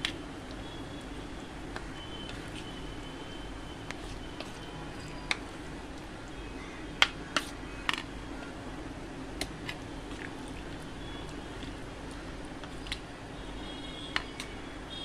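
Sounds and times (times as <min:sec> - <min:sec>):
spoon stirring thick marinade: 0:00.0 - 0:06.4, 0:07.0 - 0:08.1, 0:09.3 - 0:13.1, 0:14.1 - 0:14.6.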